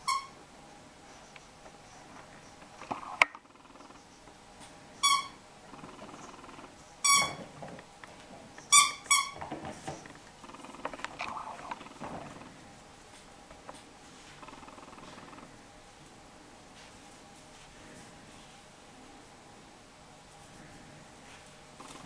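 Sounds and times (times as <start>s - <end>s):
puppy noises: 1.1s - 7.5s, 8.1s - 12.8s, 13.5s - 15.6s, 21.8s - 22.0s
rubber squeaky toy squeaking: 5.0s - 5.4s, 8.7s - 9.4s.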